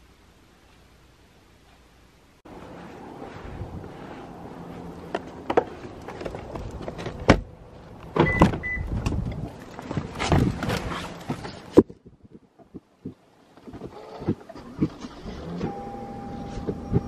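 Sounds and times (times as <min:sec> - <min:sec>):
rustling of person climbing in: 0:02.5 - 0:15.1
car door shutting: 0:08.1 - 0:09.2.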